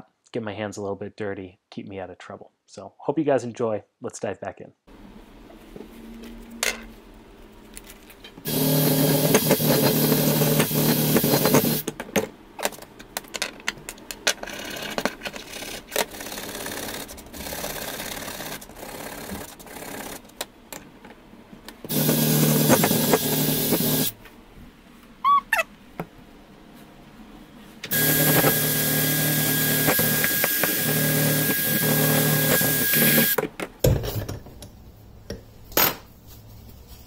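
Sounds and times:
power tool motor running: 8.4 - 11.8, 21.9 - 24.2, 27.9 - 33.4.

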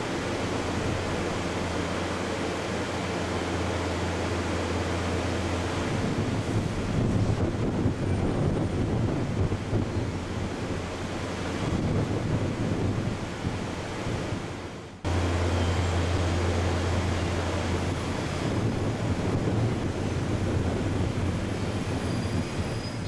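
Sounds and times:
wind buffeting microphone: 5.6 - 15.2, 16.1 - 23.0.

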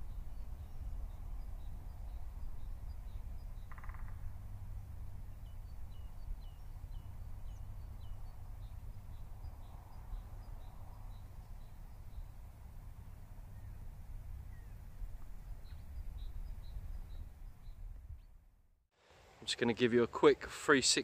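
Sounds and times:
small birds chirping: 0.0 - 18.4
low steady rumble: 0.0 - 18.7.

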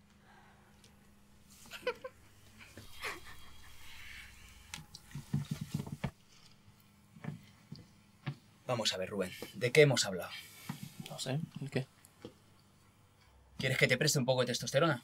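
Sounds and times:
people laughing quietly: 1.5 - 4.3.

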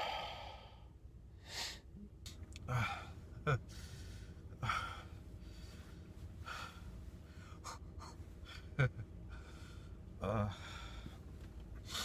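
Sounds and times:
man breathing: 0.0 - 1.9, 2.7 - 12.0
steady low hum: 0.0 - 12.0.

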